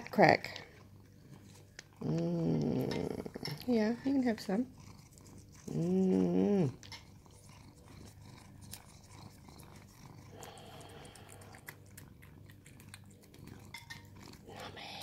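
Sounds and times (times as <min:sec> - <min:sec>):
low hummed voice: 0:02.0 - 0:04.7, 0:05.6 - 0:07.0, 0:14.4 - 0:15.0
cat tongue licking wet clicks: 0:06.8 - 0:15.0.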